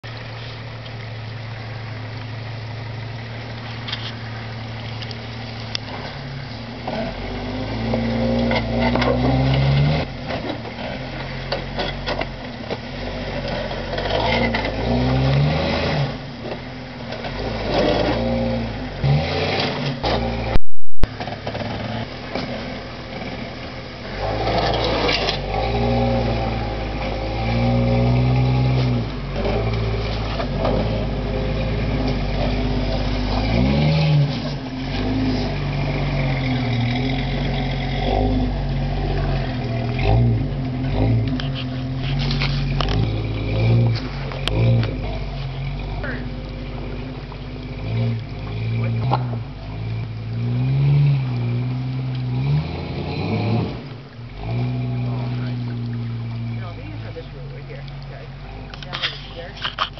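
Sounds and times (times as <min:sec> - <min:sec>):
car engine idling and revving: 0:00.0 - 0:59.9
knocks and scrapes on rock: 0:58.8 - 0:59.9.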